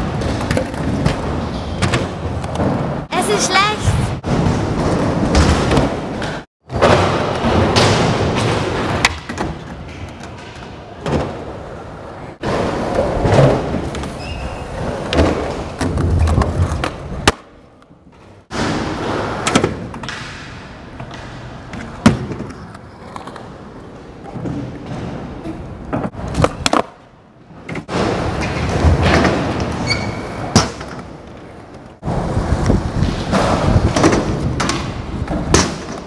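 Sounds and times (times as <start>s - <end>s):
skateboards popping and landing: 0.0s - 3.0s, 4.2s - 36.0s
skateboard wheels rolling on concrete: 0.0s - 36.0s.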